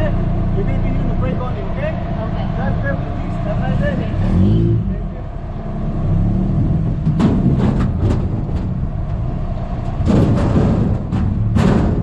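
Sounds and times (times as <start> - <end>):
buggy engine running: 0.0 - 12.0
clattering knocks: 6.9 - 12.0.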